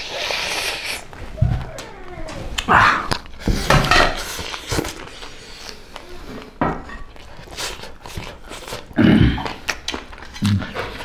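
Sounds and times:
chewing and lip-smacking: 0:07.0 - 0:11.0.

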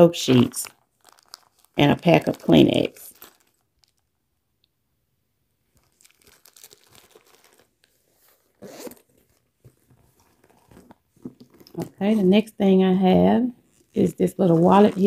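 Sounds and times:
packets rustling and crinkling: 0:00.2 - 0:04.1, 0:05.8 - 0:12.4, 0:13.6 - 0:15.0.

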